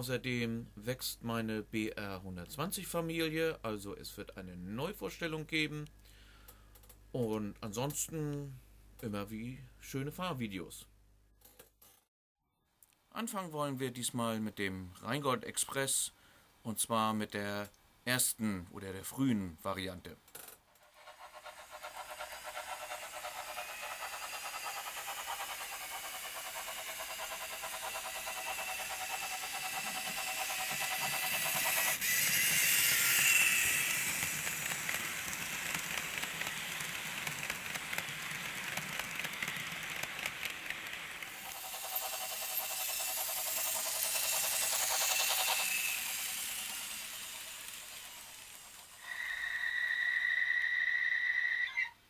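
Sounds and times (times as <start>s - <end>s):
model train rolling hiss and hum: 20.7s - 50.0s.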